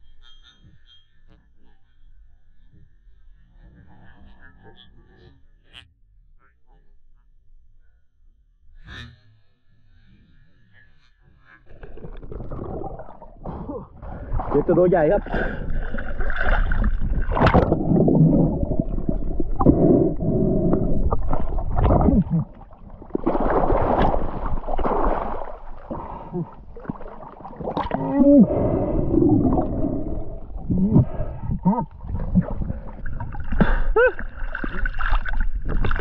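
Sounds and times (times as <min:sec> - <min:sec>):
water splashing and gurgling: 0:11.7 - 0:36.0.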